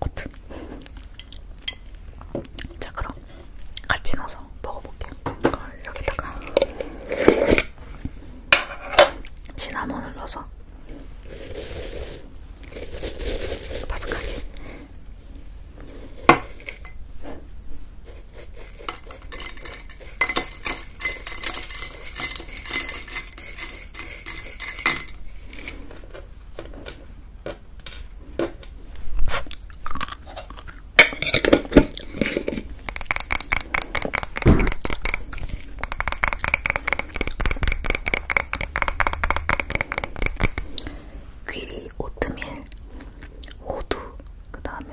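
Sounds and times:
rapid glassy clicks on a jar: 0:18.9 - 0:25.2, 0:35.8 - 0:40.7.

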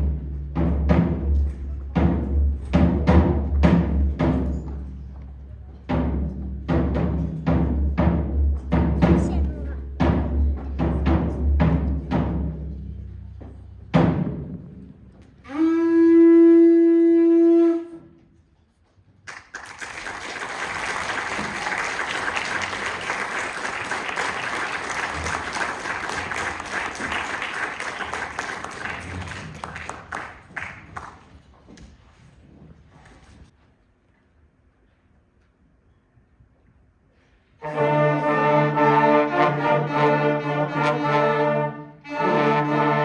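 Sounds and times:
timpani strokes: 0:00.0 - 0:05.2, 0:05.8 - 0:18.4, 0:37.6 - 0:43.0
held wind instrument note: 0:15.4 - 0:18.5, 0:37.6 - 0:43.0
audience applause: 0:19.3 - 0:31.4.

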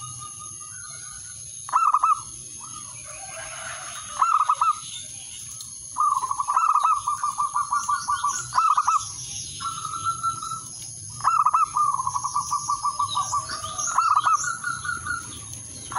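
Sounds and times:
dove cooing: 0:00.0 - 0:04.8, 0:06.0 - 0:15.9.

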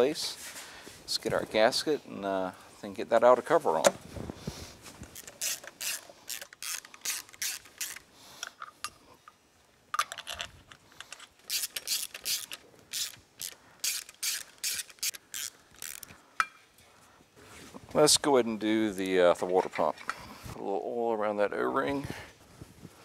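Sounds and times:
hand ratchet clicking: 0:05.2 - 0:08.7, 0:11.0 - 0:16.2.

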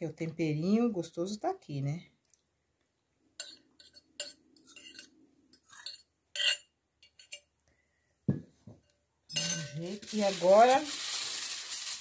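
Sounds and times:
fork scraping and clinking glass bowl: 0:03.4 - 0:07.5, 0:09.3 - 0:10.0.

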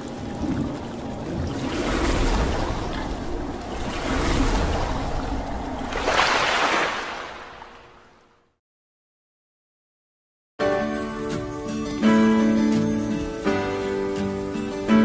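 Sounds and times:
splashing rushing water: 0:00.0 - 0:08.3.

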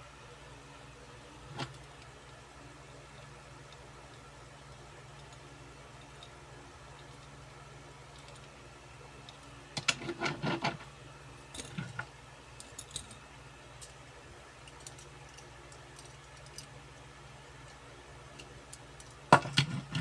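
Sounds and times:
toy cars clicking and clattering: 0:14.6 - 0:16.7.

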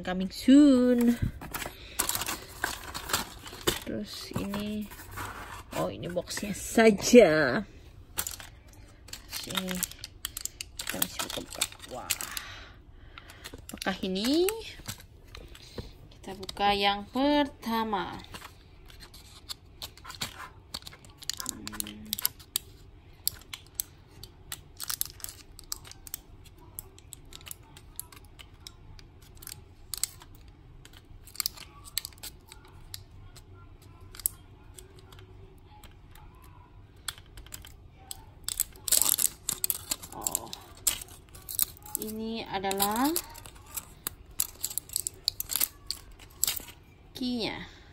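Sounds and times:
foil wrapper tearing and crackling: 0:09.1 - 0:12.6, 0:24.5 - 0:26.3, 0:30.8 - 0:33.0, 0:38.4 - 0:46.7.

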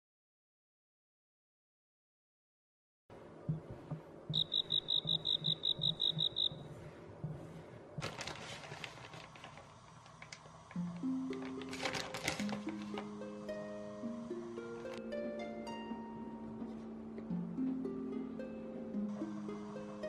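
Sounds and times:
high chirps: 0:04.3 - 0:06.6
plucked-string music: 0:10.8 - 0:20.0.

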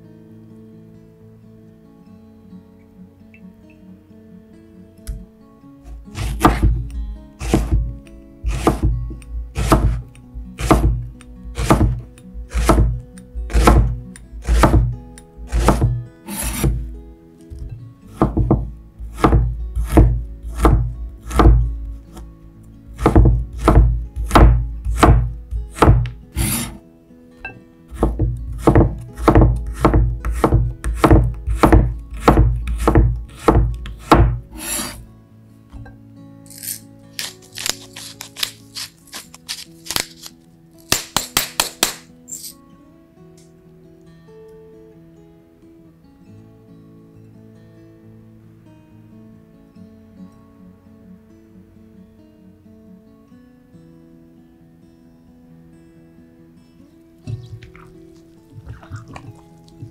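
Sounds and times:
knife thumping on cutting board: 0:06.2 - 0:07.9, 0:08.5 - 0:08.9, 0:23.0 - 0:26.2, 0:28.0 - 0:34.4.

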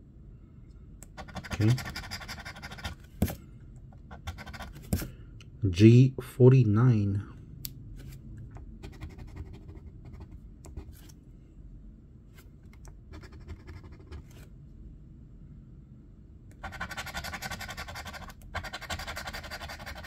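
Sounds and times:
coin scratching lottery ticket: 0:01.2 - 0:03.0, 0:04.2 - 0:04.8, 0:16.6 - 0:20.0.

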